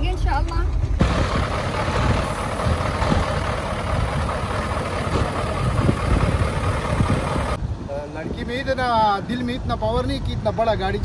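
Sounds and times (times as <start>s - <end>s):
heavy truck engine running: 0.7s - 7.6s.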